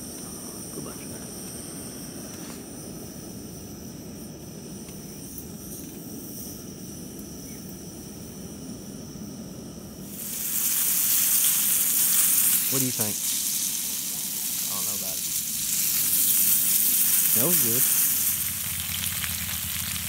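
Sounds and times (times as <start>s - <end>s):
gas burner running: 0.0s - 20.0s
insects buzzing: 0.0s - 20.0s
meat sizzling in hot fat: 10.0s - 20.0s.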